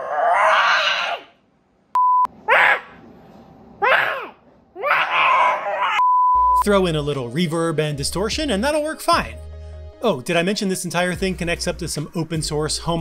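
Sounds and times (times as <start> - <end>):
girl shrieking: 0.0 - 1.3, 3.8 - 6.0
short steady beep: 2.0 - 2.3, 6.0 - 6.6.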